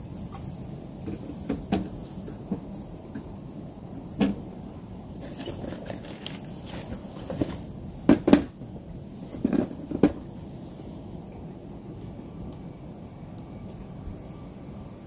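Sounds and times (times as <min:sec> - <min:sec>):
faint steady hiss: 0:00.0 - 0:15.0
close knocks and rustles: 0:05.2 - 0:08.6, 0:09.2 - 0:10.2.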